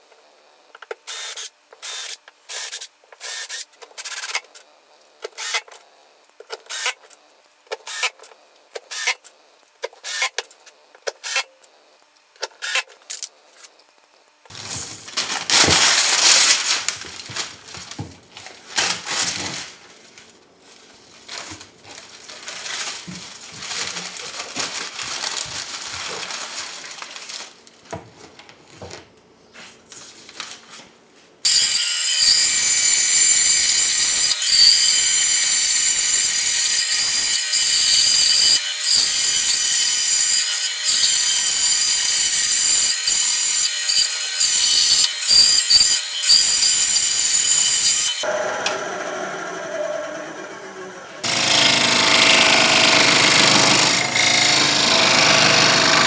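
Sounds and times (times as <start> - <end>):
paper rustling and crinkling: 14.5 - 31.0
band saw cutting wood: 31.5 - 56.0.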